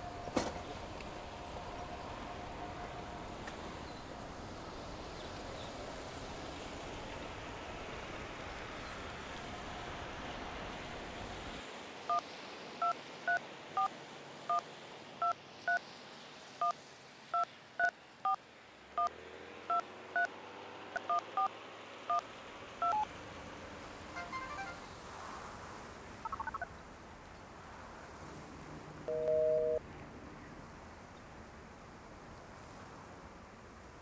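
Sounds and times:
phone key tone beeps: 22.8s - 23.0s, 26.3s - 26.6s, 29.1s - 29.8s.

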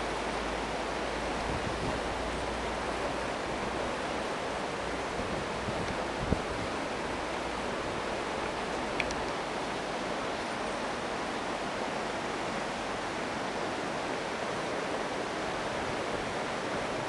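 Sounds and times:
wind on microphone: 1.4s - 2.6s, 5.0s - 8.1s.

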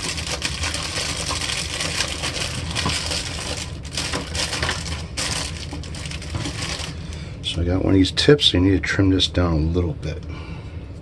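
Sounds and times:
small hard parts rattling: 0.0s - 7.0s.

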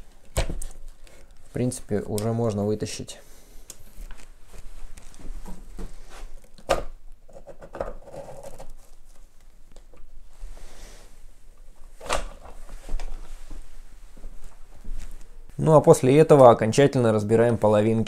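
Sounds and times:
soft scraping and rustling: 3.3s - 6.4s, 10.2s - 15.7s.

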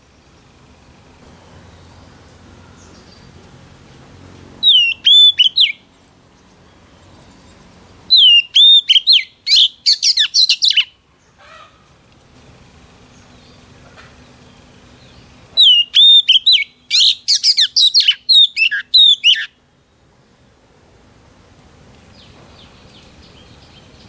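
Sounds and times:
bird singing clear whistles: 4.6s - 5.8s, 8.1s - 11.0s, 15.1s - 19.6s.

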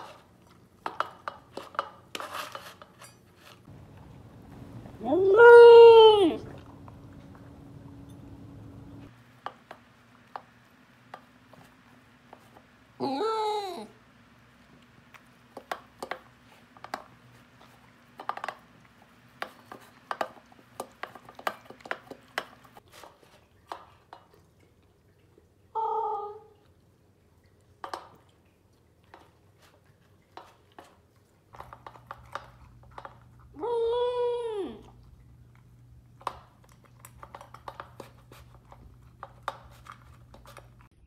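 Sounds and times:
puppy eating from metal bowl: 0.0s - 5.2s, 6.3s - 12.6s, 14.6s - 25.7s, 26.6s - 33.6s, 34.8s - 41.0s
puppy howling: 5.0s - 6.8s.

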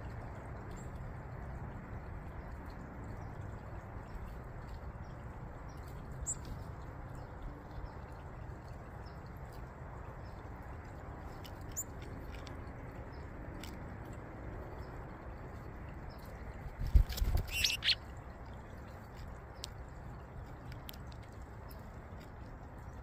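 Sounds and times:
high bird chirps: 17.2s - 18.0s
small seed cracking ticks: 20.4s - 22.5s.

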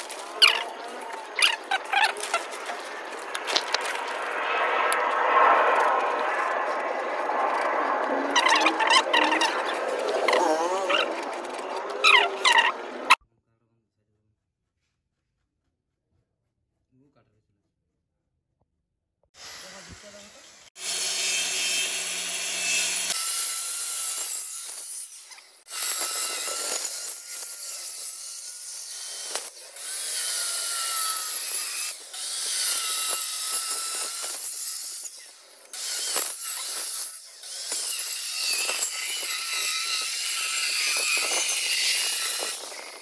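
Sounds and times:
electric cutter whining: 4.9s - 13.2s, 19.4s - 43.0s.

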